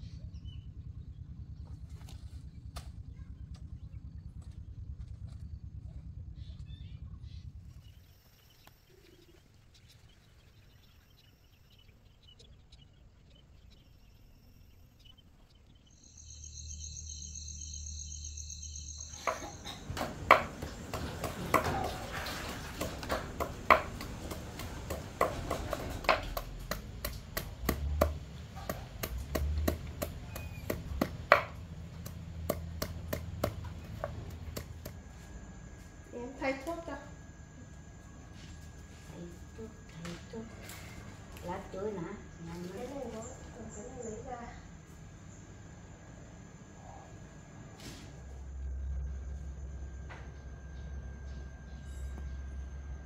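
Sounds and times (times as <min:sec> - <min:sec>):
knife chopping on wooden block: 0:22.8 - 0:35.0.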